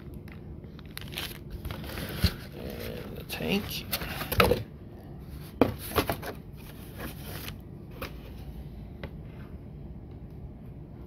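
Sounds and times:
packaging rustling: 0.2s - 4.5s.

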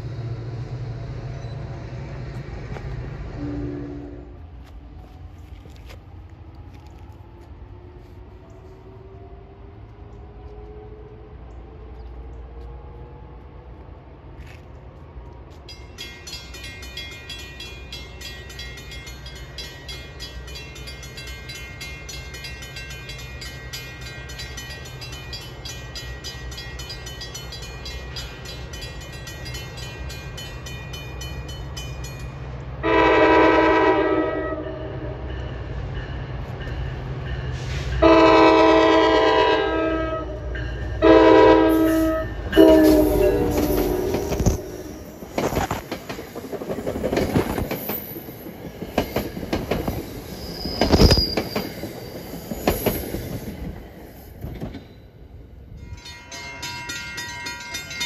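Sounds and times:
low train rumble: 0.0s - 58.0s
locomotive horn: 3.4s - 4.5s, 32.8s - 35.3s, 37.6s - 45.1s
crossing bell ringing: 15.5s - 45.2s, 54.8s - 58.0s.

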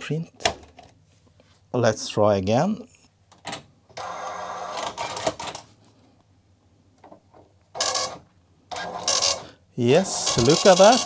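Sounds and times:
dot matrix printer printing: 4.0s - 5.5s, 7.8s - 9.4s, 10.0s - 11.0s.

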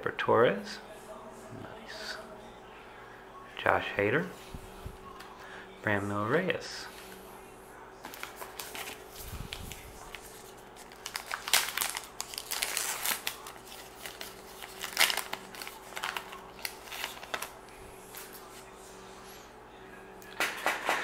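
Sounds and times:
paper wrapper tearing and crinkling: 8.1s - 18.3s.

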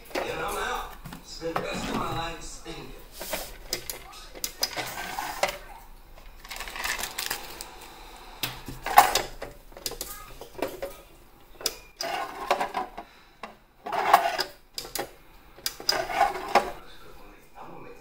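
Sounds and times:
plastic drawer scraping in metal cabinet: 0.0s - 5.7s, 12.0s - 13.0s, 13.8s - 14.6s, 15.8s - 16.9s.

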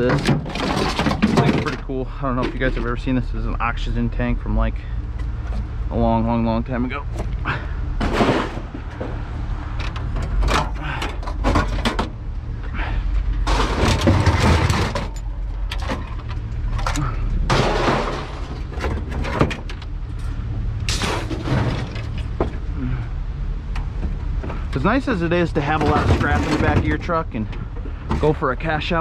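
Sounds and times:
scrap metal clanking and crashing: 0.0s - 3.2s, 7.5s - 12.2s, 12.8s - 22.7s, 23.9s - 29.0s
steady low rumble: 0.0s - 29.0s.

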